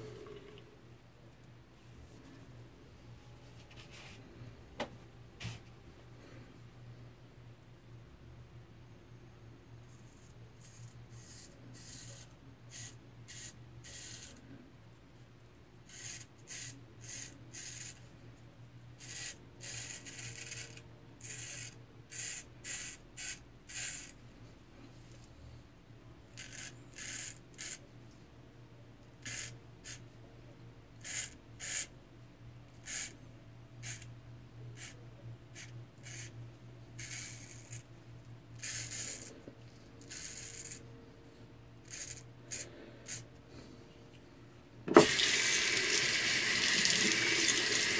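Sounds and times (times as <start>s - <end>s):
steady low hum: 0.0s - 45.0s
razor scraping stubble: 35.6s - 36.4s.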